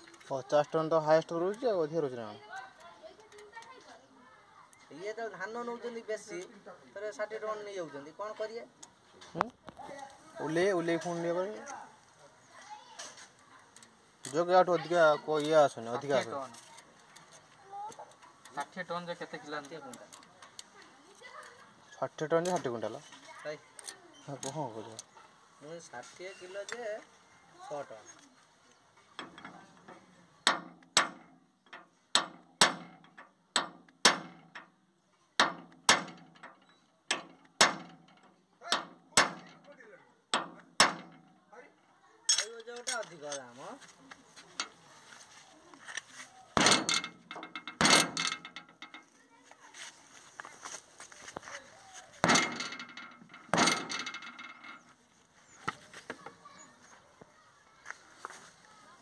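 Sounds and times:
metal-on-metal blows: 46.6s - 49.1s, 52.2s - 54.7s.

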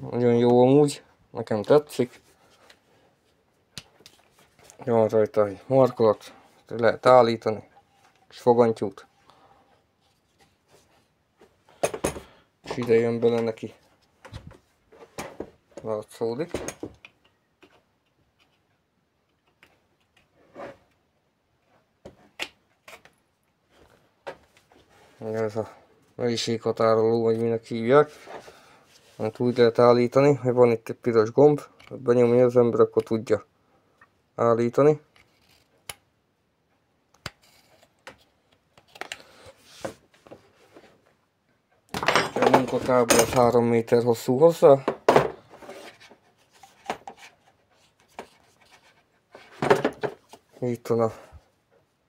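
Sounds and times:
soft rustle: 27.3s - 29.8s.

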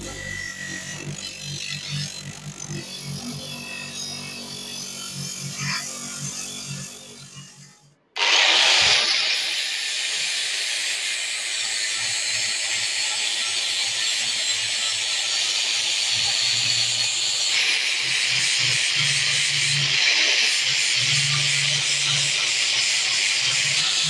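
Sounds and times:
angle grinder grinding steel: 0.0s - 24.0s.

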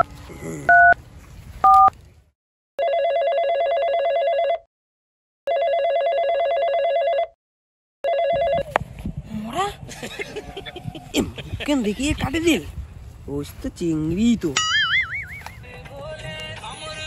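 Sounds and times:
keypad beeps: 1.6s - 1.9s
phone ringing trill: 2.8s - 4.6s, 5.5s - 7.3s, 8.0s - 8.7s.

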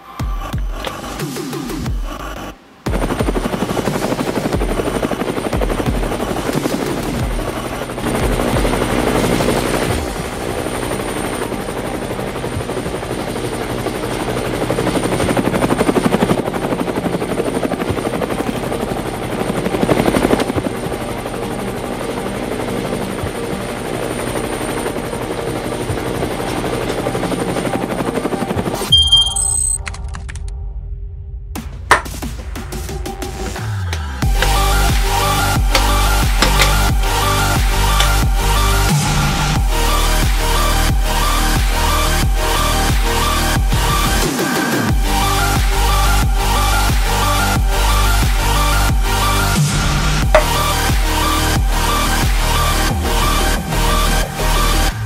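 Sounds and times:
helicopter rotor beating: 0.2s - 29.2s, 34.2s - 55.0s
high engine whine: 34.2s - 55.0s.

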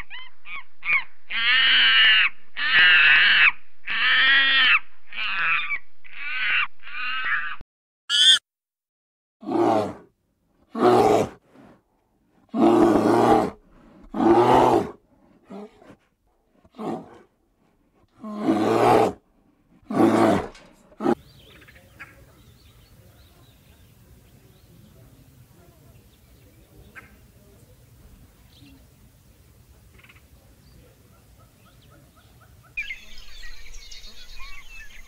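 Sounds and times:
animal giving rough calls: 9.4s - 21.2s.

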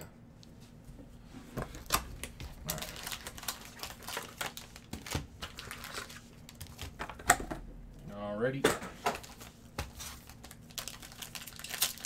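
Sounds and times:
foil wrappers crinkling: 1.7s - 7.0s, 9.1s - 12.0s.

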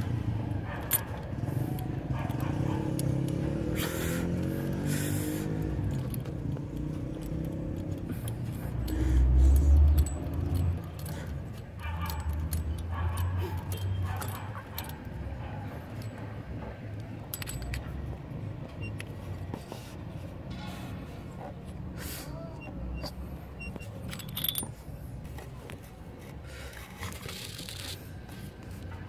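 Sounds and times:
metal wrench clinks and rattles: 0.2s - 19.7s, 23.0s - 25.5s, 26.7s - 29.0s.

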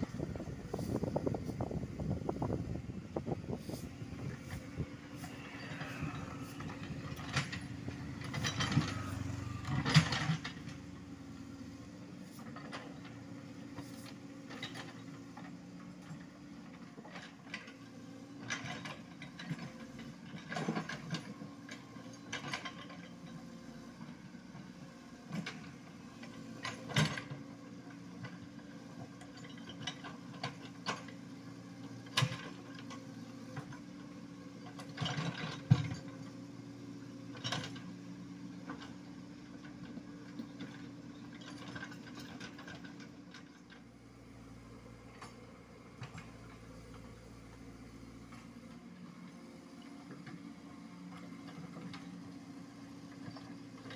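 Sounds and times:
diesel engine running: 0.0s - 22.4s.

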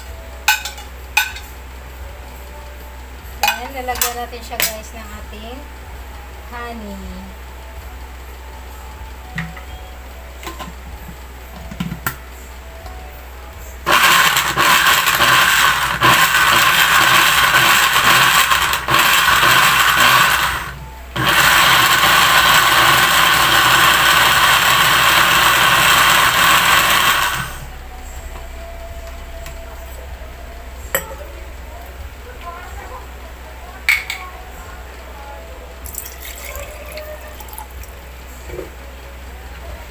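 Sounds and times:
blender running: 13.9s - 27.7s.

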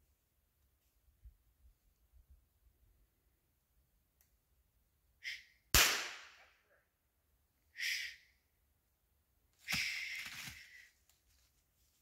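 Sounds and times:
gunshot with echo: 5.8s - 6.4s.

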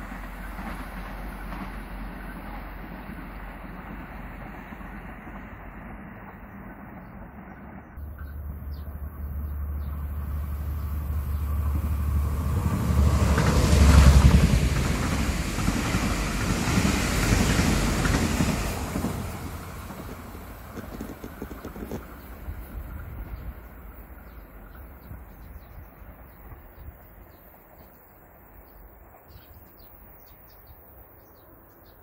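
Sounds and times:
train passing at speed: 0.0s - 32.0s.

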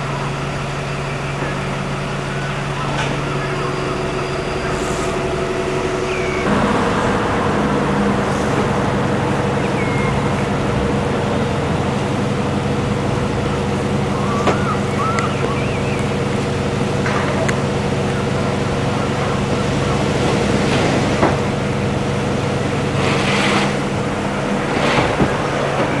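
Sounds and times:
bus engines idling: 0.0s - 26.0s
bird chirps: 6.0s - 6.5s, 9.6s - 10.3s, 14.2s - 16.2s.

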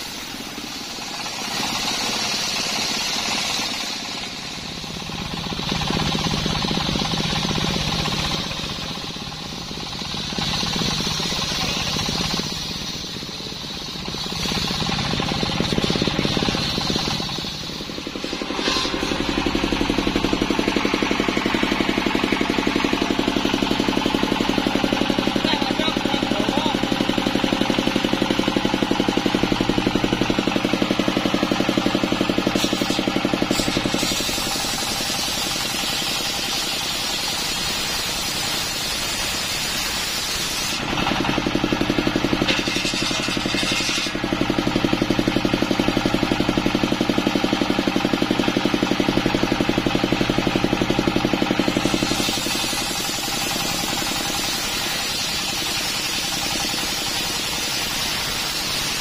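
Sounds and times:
saw blade hissing through wood: 0.0s - 4.6s, 9.8s - 25.4s, 30.8s - 40.9s, 41.9s - 44.3s, 51.4s - 59.0s
diesel engine chugging: 0.0s - 59.0s.

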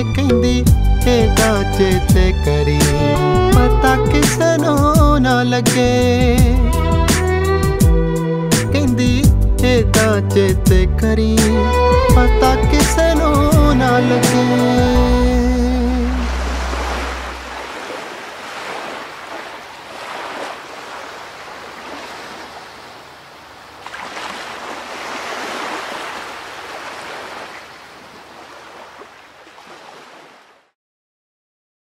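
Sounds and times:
sea waves breaking on shore: 15.7s - 30.8s.

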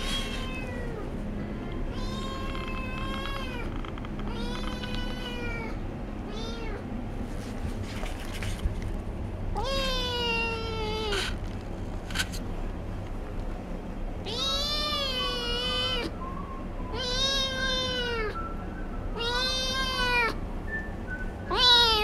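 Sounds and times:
kitten meowing: 1.9s - 3.7s, 4.3s - 6.8s, 14.3s - 16.1s, 16.9s - 18.4s, 19.2s - 20.4s, 21.5s - 22.0s.

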